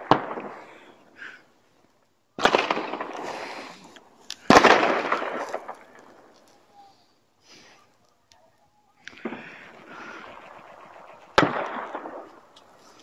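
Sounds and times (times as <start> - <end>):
loud firework bangs: 4.5 - 6.3, 9.1 - 13.0
echoing rumble: 9.2 - 13.0.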